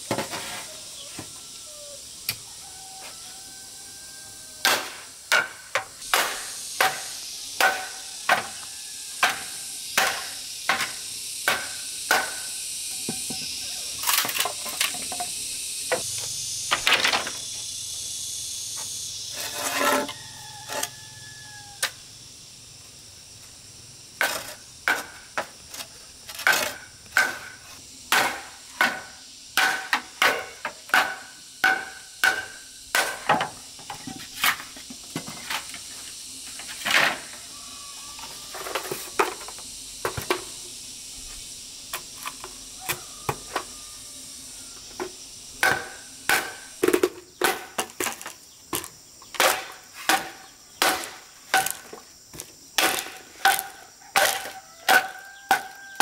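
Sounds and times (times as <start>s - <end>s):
machete chopping bamboo: 4.6s - 8.6s, 9.2s - 12.6s, 26.3s - 33.5s, 45.6s - 48.2s, 48.8s - 52.0s, 52.8s - 55.8s.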